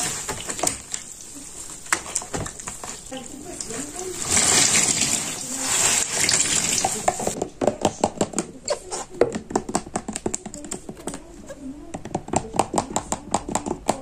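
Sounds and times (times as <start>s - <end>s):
water streaming from a squeezed sponge: 0.0s - 7.4s.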